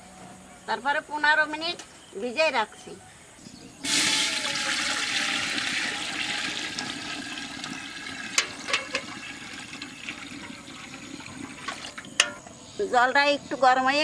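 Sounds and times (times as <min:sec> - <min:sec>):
water pouring into metal pot: 0:03.8 - 0:12.5.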